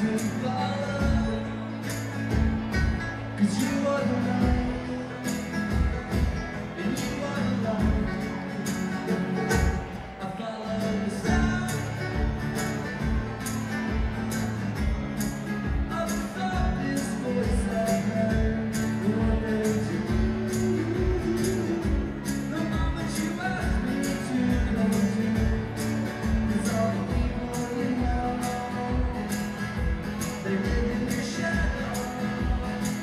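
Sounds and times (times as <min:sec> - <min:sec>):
acoustic guitar and banjo playing: 0:00.0 - 0:33.0.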